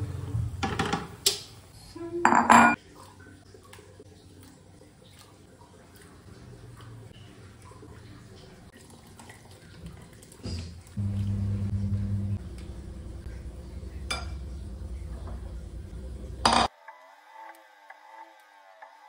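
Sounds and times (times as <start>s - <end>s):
low hum: 11.0s - 16.7s.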